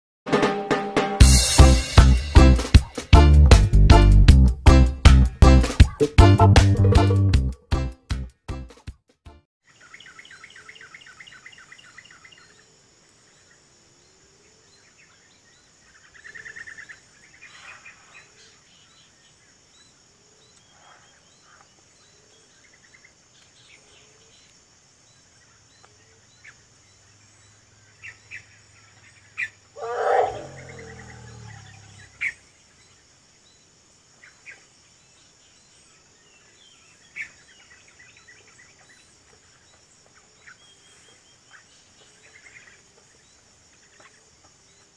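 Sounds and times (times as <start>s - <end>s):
faint birdsong: 9.6s - 44.9s
elephant call: 29.8s - 32.3s.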